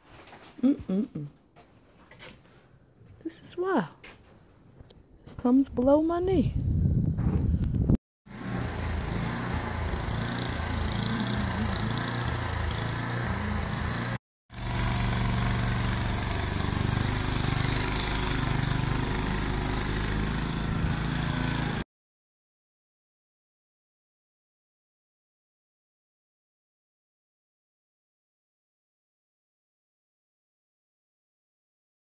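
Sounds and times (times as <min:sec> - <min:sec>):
snowblower engine running: 0:08.3 - 0:21.8.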